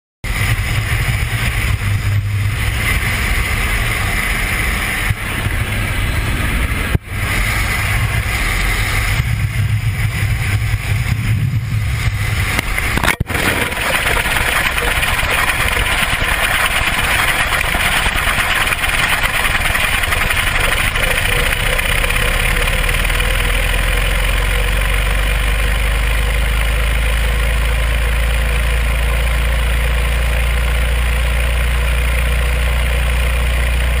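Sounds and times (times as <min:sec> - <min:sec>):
low rumble: 0:00.3 - 0:24.9
light aircraft engine droning: 0:00.3 - 0:30.3.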